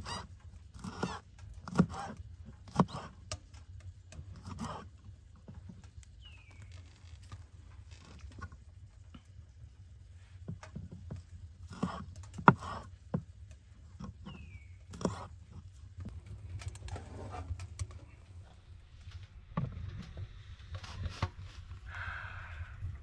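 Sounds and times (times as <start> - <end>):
knife chopping on wooden board: 11.7 - 13.3.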